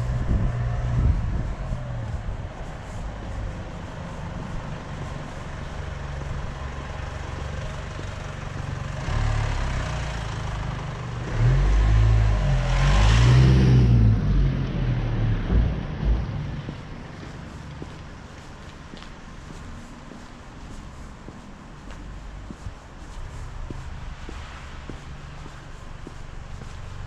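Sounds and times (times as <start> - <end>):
city traffic hum: 0.0 - 27.0
car driving past: 8.6 - 17.9.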